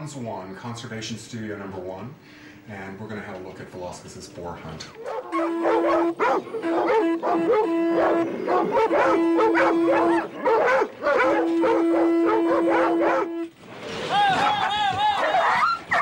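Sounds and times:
steady held note: 3.1 - 13.6
dogs barking and baying: 4.9 - 13.5, 14.4 - 16.0.

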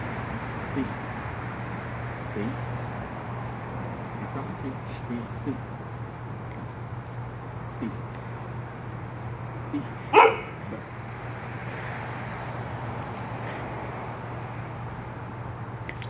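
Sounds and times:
steady low hum: 0.0 - 16.0
dog barking: 10.1 - 10.6
dog yipping: 10.1 - 10.6.

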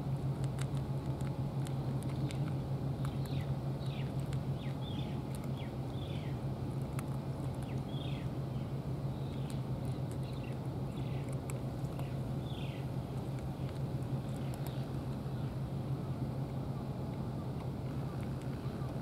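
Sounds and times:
low hum: 0.0 - 19.0
cat chewing clicks: 0.3 - 6.1, 6.7 - 8.2, 9.2 - 15.2, 17.1 - 19.0
bird chirping: 2.2 - 6.4, 7.5 - 15.6.

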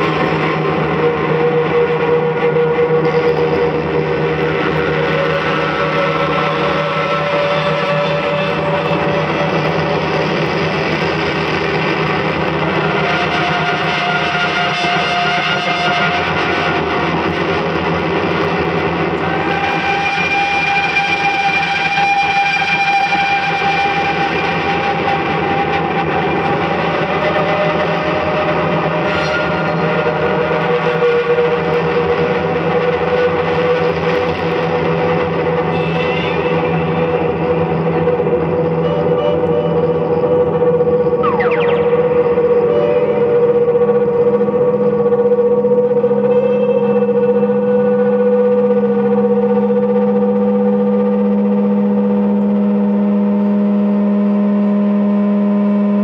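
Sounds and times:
electronic noise drone: 0.0 - 56.0.

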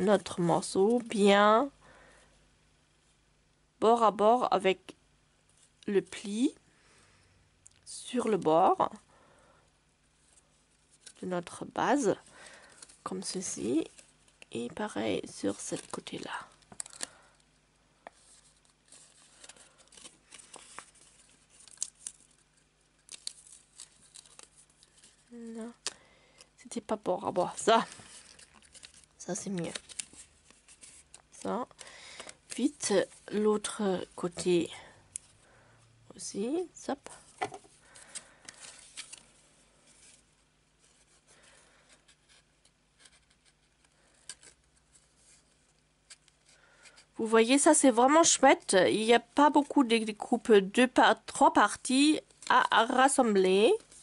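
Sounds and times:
paper rustling: 12.4 - 17.1, 18.0 - 25.4, 27.4 - 34.6, 37.3 - 46.9
crisp paper ticks: 19.4 - 22.4, 23.0 - 26.0, 27.8 - 32.9
cardstock rustling and scraping: 27.4 - 33.4.

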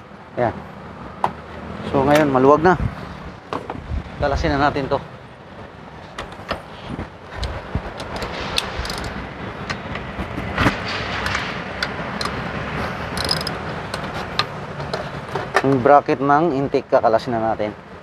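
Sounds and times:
hand ratchet clicking: 7.4 - 9.2, 11.2 - 12.4, 13.0 - 15.0.

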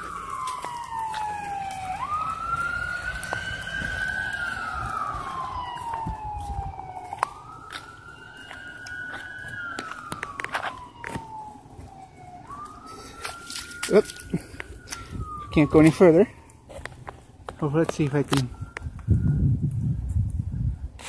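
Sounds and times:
emergency siren wailing: 0.0 - 21.0.

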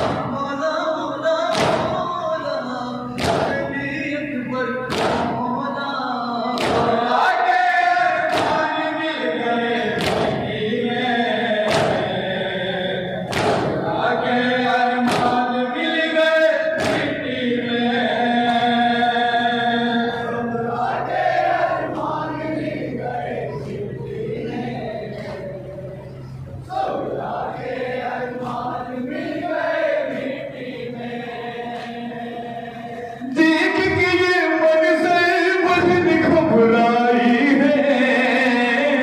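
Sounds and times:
men chanting in chorus: 0.0 - 39.0
hands striking chests: 13.3 - 13.8.

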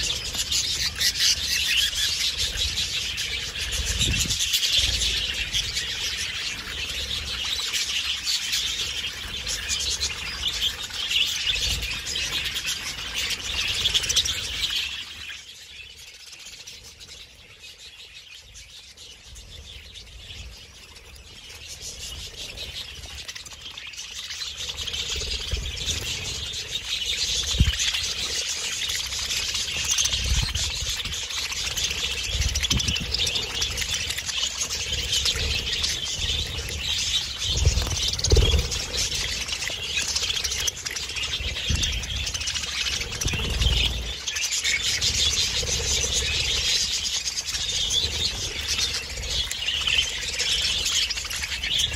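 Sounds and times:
budgerigars chattering and warbling: 0.0 - 51.9.

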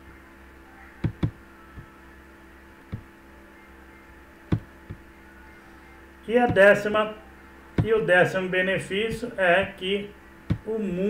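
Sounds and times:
steady low hum: 0.0 - 11.0
sharp knocks: 1.0 - 1.4, 4.5 - 5.0, 7.8 - 8.0, 10.5 - 10.7.

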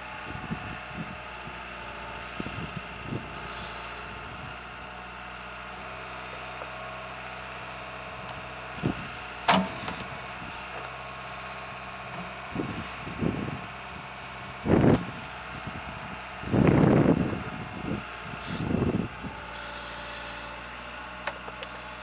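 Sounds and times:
diesel engine running: 0.0 - 22.0
metallic clank with ring: 9.5 - 10.3.

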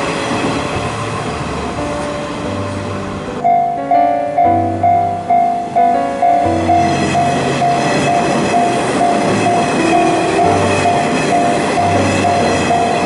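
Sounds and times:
electric train running: 0.0 - 13.0
level crossing bell ringing: 4.4 - 13.0.

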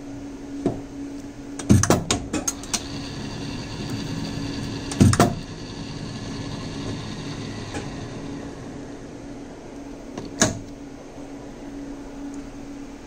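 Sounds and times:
lathe humming: 2.5 - 10.1.

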